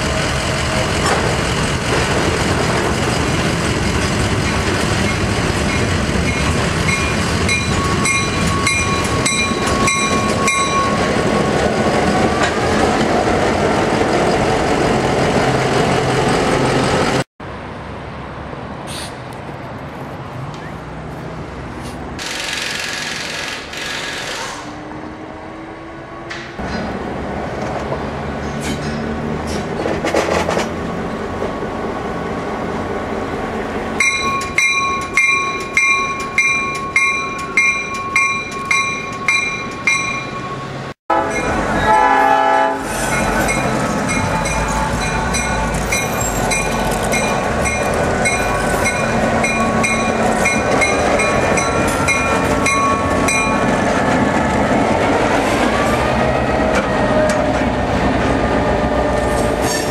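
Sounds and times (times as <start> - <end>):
diesel locomotive engine: 0.0 - 59.9
bell ringing: 6.9 - 11.0, 34.0 - 41.6
train horn blast: 41.1 - 43.1.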